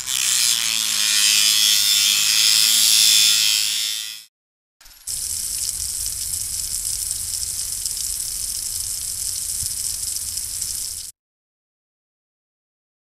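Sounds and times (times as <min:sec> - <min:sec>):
water spraying from hose nozzle: 0:05.0 - 0:11.1.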